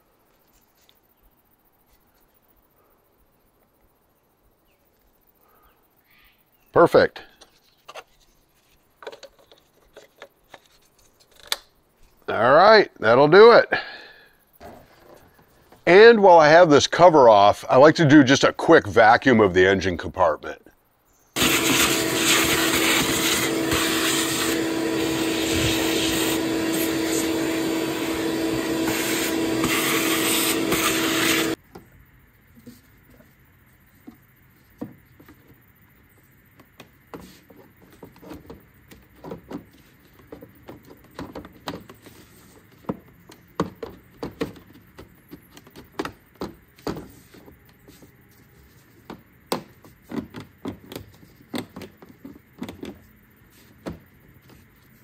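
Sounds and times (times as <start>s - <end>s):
vacuum cleaner humming: 21.4s - 31.6s.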